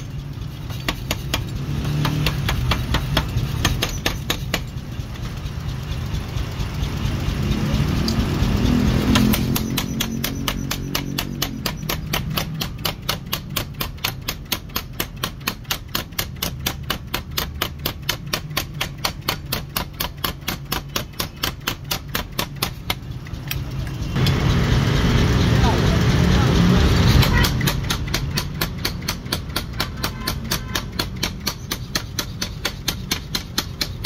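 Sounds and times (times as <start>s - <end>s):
forging hammer striking metal: 0.0s - 5.3s, 8.9s - 23.2s, 27.0s - 34.0s
low motor hum: 0.0s - 14.4s, 21.0s - 30.8s.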